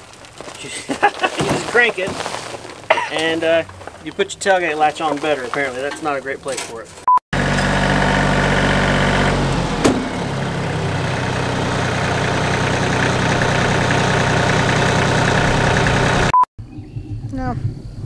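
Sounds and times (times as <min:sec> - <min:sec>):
tractor diesel engine running: 0:07.4 - 0:16.4.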